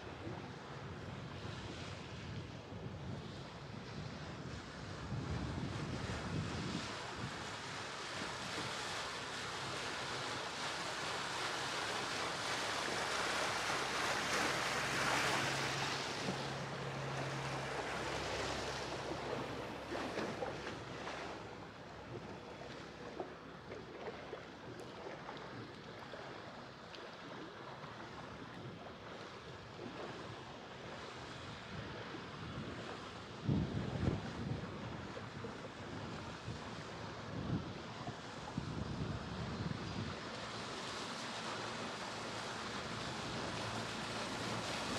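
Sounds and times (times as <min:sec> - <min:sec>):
wind on microphone: 0:00.0 - 0:11.2, 0:29.8 - 0:40.7
water rushing along hull: 0:00.0 - 0:44.9
low steady hum: 0:11.4 - 0:44.9.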